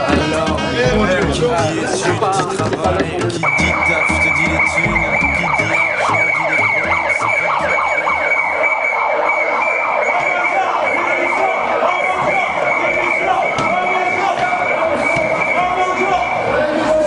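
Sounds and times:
siren-like noisemaker wails: 3.4 - 17.0.

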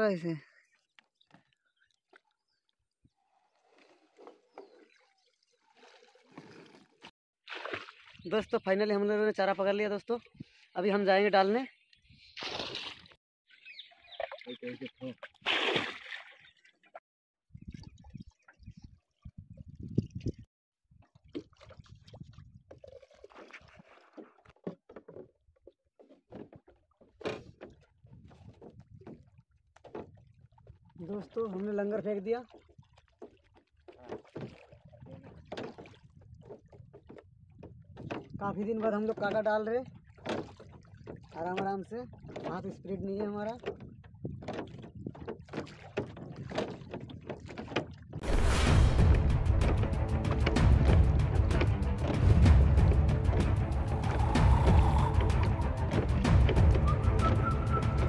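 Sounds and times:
water splashing and dripping: 1.0 - 17.0, 17.6 - 58.0
knocks and taps on wooden boat: 35.3 - 48.2.

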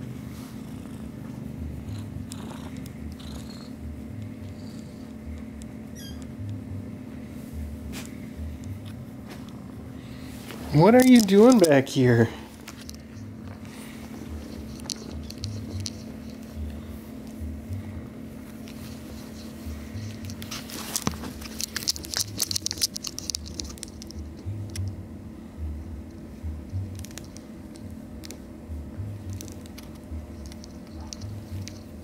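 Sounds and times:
steady low hum: 0.0 - 32.0
kittens rustling and clicking: 10.4 - 11.9, 12.5 - 17.5, 18.4 - 25.0, 26.1 - 28.4, 29.2 - 32.0.

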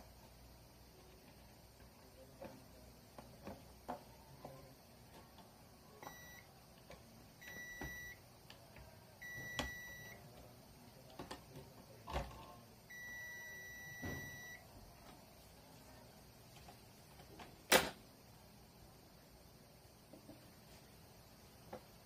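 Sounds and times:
multimeter continuity buzzer beeping: 6.0 - 6.5, 7.4 - 8.2, 9.2 - 10.2, 12.9 - 14.7.

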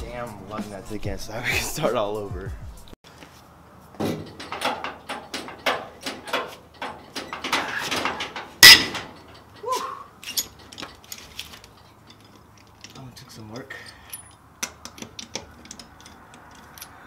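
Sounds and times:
metallic clicks and rattles: 4.1 - 17.0
light metal clinks: 8.6 - 17.0.

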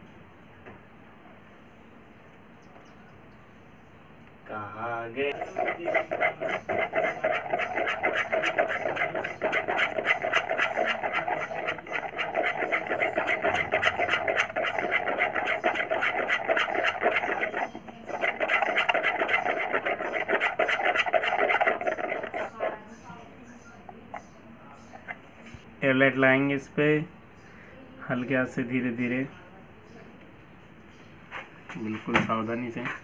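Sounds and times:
hand tool scraping hard surface: 5.3 - 22.8.

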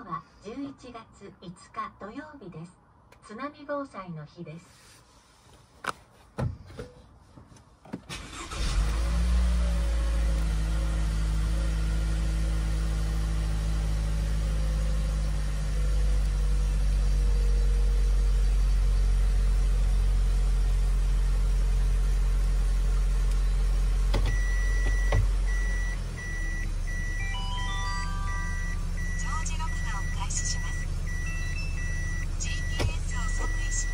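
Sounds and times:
car engine idling: 8.1 - 33.9
reverse warning buzzer beeping: 24.3 - 33.9.

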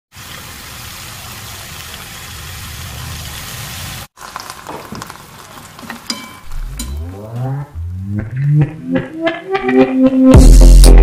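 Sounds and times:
vegetables sizzling in a wok: 0.1 - 6.2.

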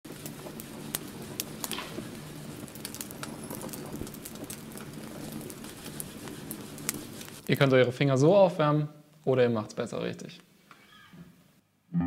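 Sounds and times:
fire crackling and popping: 0.0 - 8.4.

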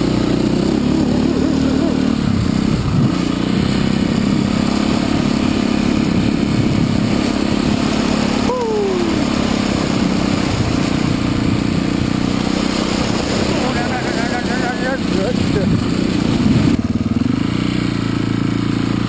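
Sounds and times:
motorbike engine running: 0.0 - 19.0.

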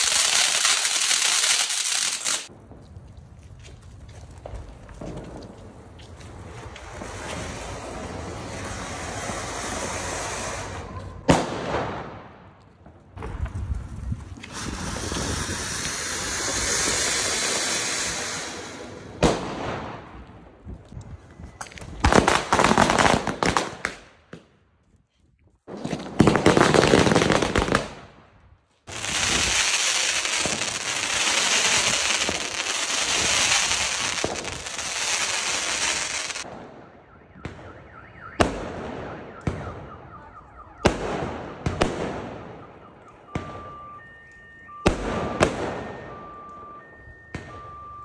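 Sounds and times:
firework rushing hiss: 7.2 - 10.9, 14.4 - 18.9, 28.9 - 36.4
beeping tone: 42.6 - 48.0.

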